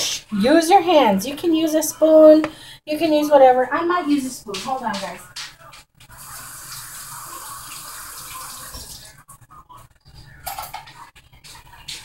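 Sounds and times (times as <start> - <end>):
kitchen tap running: 6.1 - 9.2.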